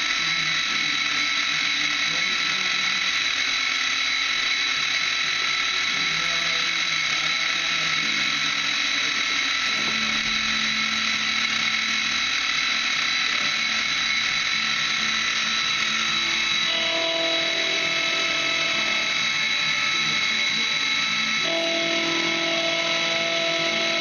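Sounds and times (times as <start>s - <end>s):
milling machine whine: 0.0s - 24.0s.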